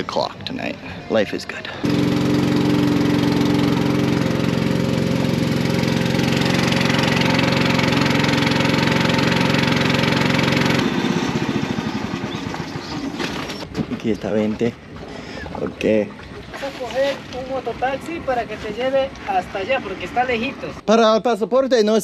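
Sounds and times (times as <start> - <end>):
outboard motor running: 1.6 - 17.8.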